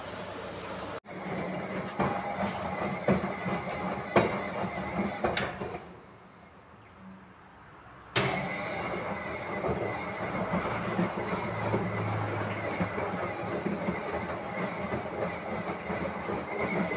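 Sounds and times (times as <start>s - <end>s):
washing machine drum tumbling: 1.1s - 5.9s, 8.2s - 16.9s.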